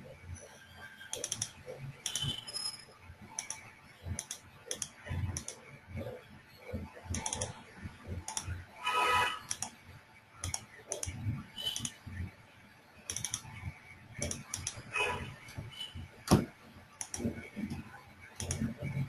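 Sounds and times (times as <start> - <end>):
computer keyboard clicking: 1.1 - 2.4, 3.4 - 5.6, 7.1 - 7.6, 8.2 - 8.5, 9.4 - 9.8, 10.4 - 12.0, 13.1 - 13.6, 14.2 - 14.8, 17.0 - 17.8, 18.4 - 18.8.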